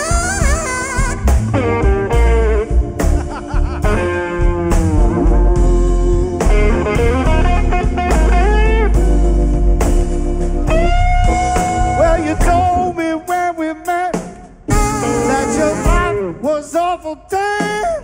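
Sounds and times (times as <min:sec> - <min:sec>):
alto saxophone: 0:00.0 - 0:02.6, 0:14.7 - 0:16.4
drum beat: 0:00.0 - 0:09.2, 0:10.7 - 0:16.3
electric guitar: 0:00.0 - 0:13.0, 0:14.7 - 0:16.4
organ: 0:00.0 - 0:13.3.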